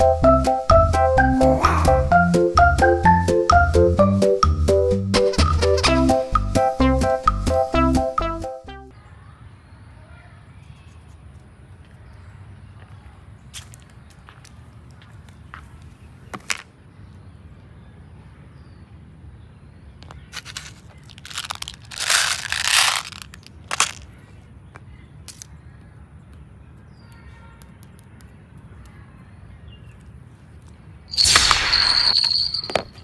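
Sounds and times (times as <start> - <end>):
beads rattling in plastic box: 20.3 - 24.0.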